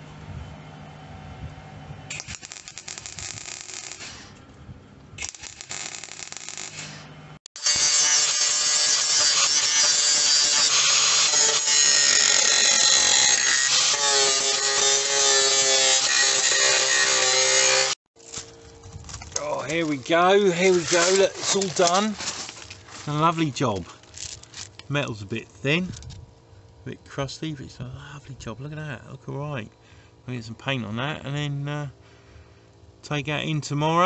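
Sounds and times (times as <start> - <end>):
hissing crackle: 2.1 - 4.4, 5.2 - 7.1
angle grinder grinding steel: 5.2 - 18.0.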